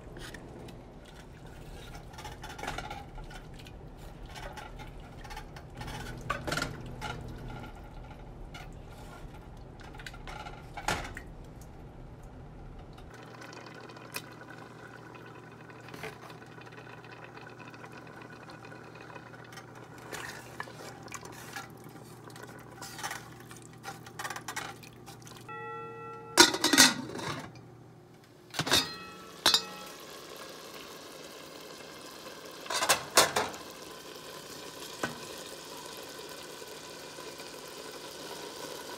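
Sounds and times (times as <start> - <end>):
metal spoon clanking on pot: 25.5 - 27.5, 28.6 - 30.0.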